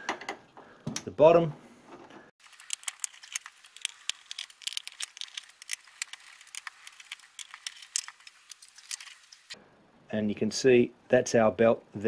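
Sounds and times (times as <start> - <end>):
screwdriver clicking on screws: 2.4 - 9.6.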